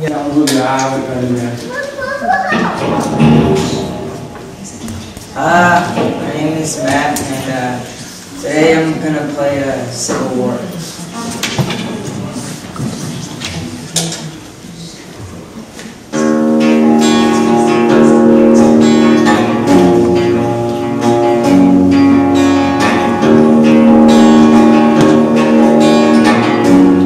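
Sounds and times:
electric guitar chords ringing: 2.6s - 4.7s, 16.1s - 27.0s.

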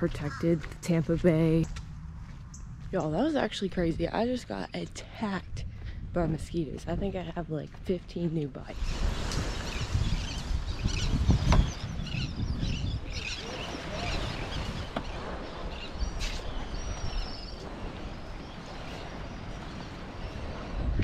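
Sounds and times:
wind buffeting microphone: 0.0s - 21.0s
small birds chirping: 8.8s - 21.0s.

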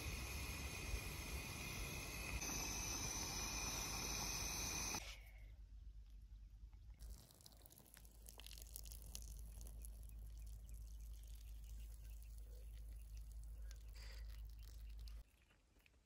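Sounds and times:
water trickling onto ground: 6.8s - 16.0s.

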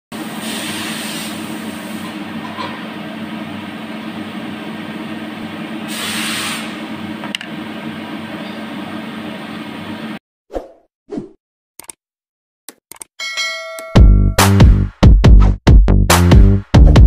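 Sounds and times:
steady background hum: 1.4s - 5.9s
sharp click: 11.8s - 12.0s, 12.7s - 13.1s.

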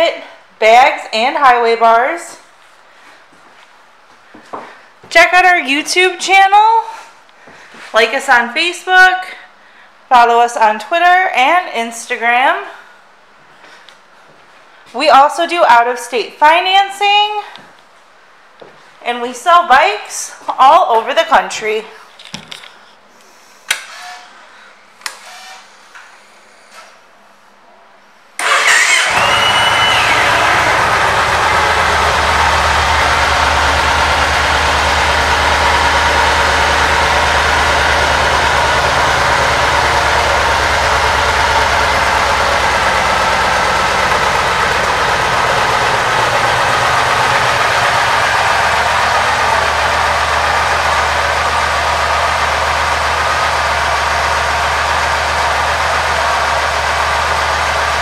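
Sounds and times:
motorcycle engine idling: 28.4s - 58.0s.

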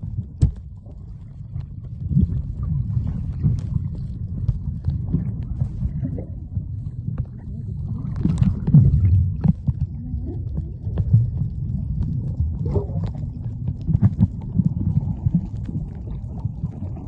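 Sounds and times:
underwater rumble of moving water: 0.0s - 17.0s.

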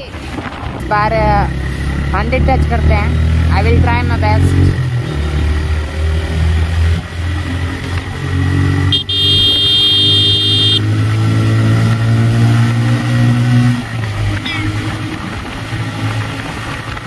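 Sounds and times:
motorcycle engine accelerating: 0.5s - 17.0s
high-pitched horn: 8.9s - 10.9s.

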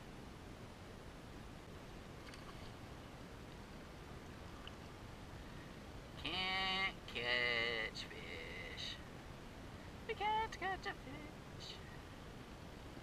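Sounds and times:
faint background noise: 0.0s - 13.0s
faint ticks: 4.6s - 4.9s
loud drawn-out vocal call: 6.2s - 9.0s.

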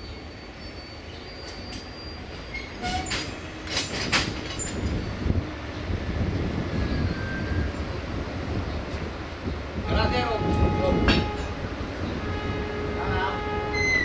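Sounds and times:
train coaches rumbling: 0.0s - 14.0s
faint wheel squeals: 0.2s - 3.6s
wheel clicks over rail joints: 2.8s - 5.0s.

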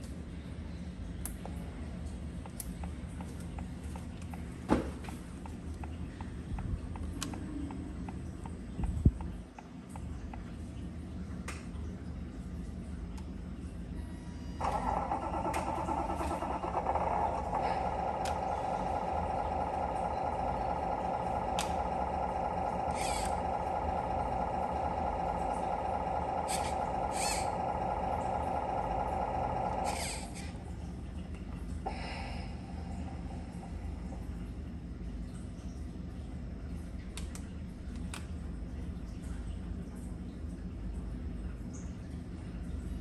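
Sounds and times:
electronic truck engine sound: 14.1s - 30.7s.

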